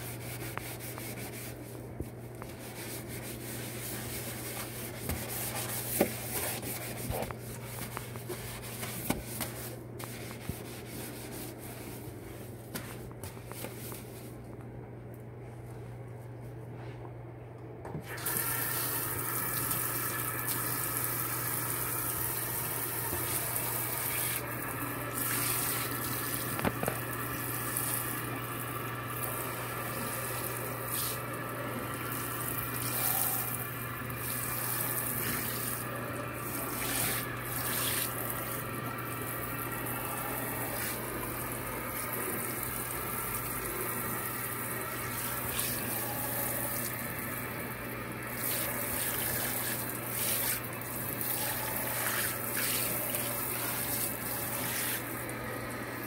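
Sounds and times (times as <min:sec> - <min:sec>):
faucet running into sink: 0:18.0 - 0:47.2.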